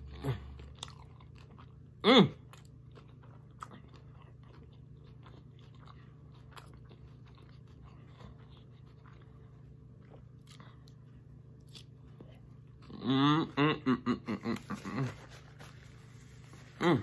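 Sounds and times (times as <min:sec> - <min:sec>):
chewing crunchy food: 0:00.0 - 0:13.6
mouth sounds: 0:12.9 - 0:15.3.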